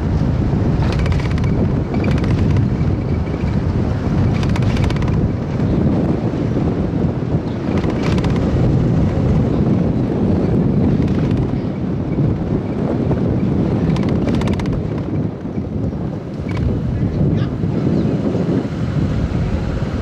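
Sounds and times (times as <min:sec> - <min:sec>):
outdoor street noise: 0:00.0 - 0:20.0
wind buffeting microphone: 0:00.0 - 0:20.0
clicking rattles: 0:00.8 - 0:03.6, 0:04.2 - 0:05.8, 0:07.7 - 0:08.6, 0:10.9 - 0:11.6, 0:13.8 - 0:15.2, 0:16.3 - 0:16.7.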